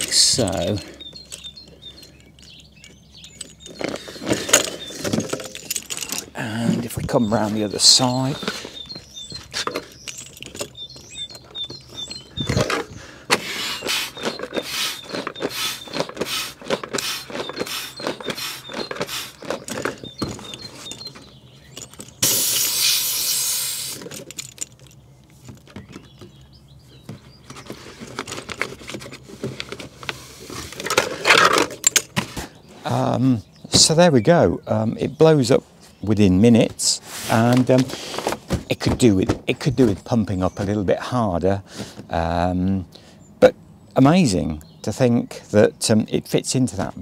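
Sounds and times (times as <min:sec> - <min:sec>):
hand pump strokes: 0:00.0 - 0:24.6.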